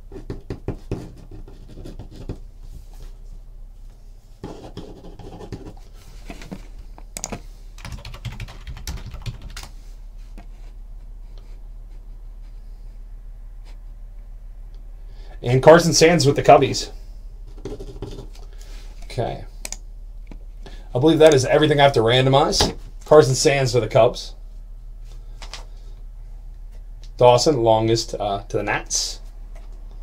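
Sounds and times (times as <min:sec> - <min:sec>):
typing on computer keyboard: 0:07.2 - 0:09.7.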